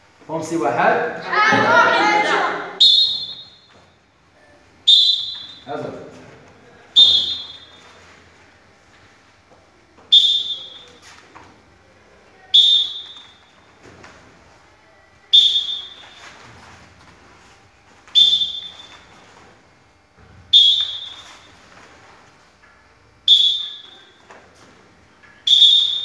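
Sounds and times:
pea whistle blasts: 2.8s - 3.6s, 4.9s - 5.6s, 7.0s - 7.7s, 10.1s - 11.0s, 12.5s - 13.3s, 15.3s - 16.2s, 18.2s - 19.0s, 20.5s - 21.5s, 23.3s - 24.1s, 25.4s - 26.0s.

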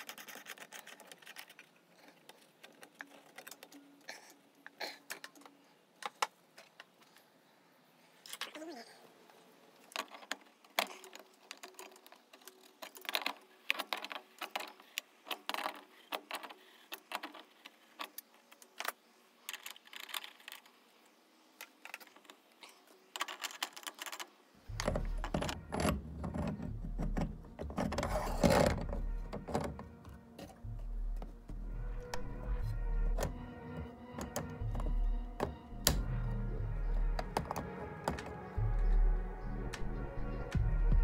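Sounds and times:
steady low hum: 24.7s - 37.4s.

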